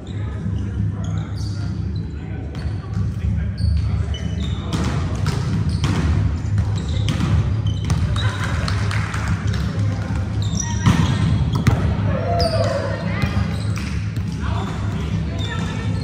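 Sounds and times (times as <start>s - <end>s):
sneaker squeaks: 0.0s - 8.6s, 10.2s - 11.8s, 12.4s - 16.0s
volleyballs thudding on gym floor: 4.6s - 16.0s.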